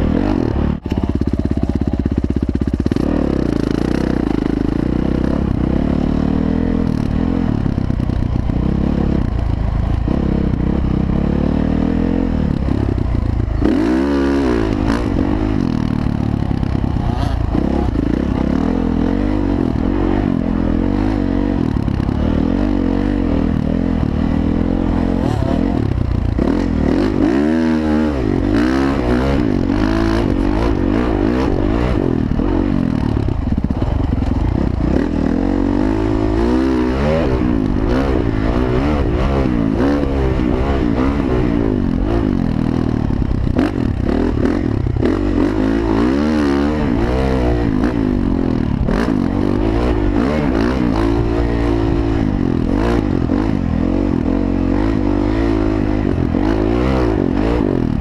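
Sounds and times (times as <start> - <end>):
dirt bike engine revving: 0.0 - 58.0.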